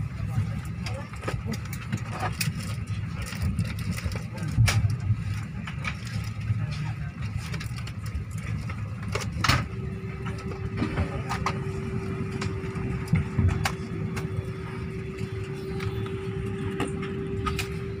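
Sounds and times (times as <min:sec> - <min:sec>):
low cabin rumble: 0:00.0 - 0:18.0
steady hum: 0:00.0 - 0:18.0.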